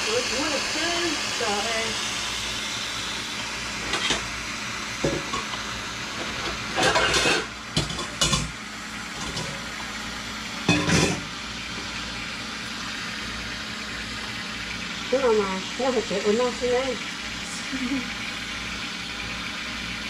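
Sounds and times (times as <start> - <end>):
sizzling hiss: 0.0 - 7.4
utensils knocking and clattering: 6.8 - 8.5, 9.2 - 9.6, 10.7 - 11.3.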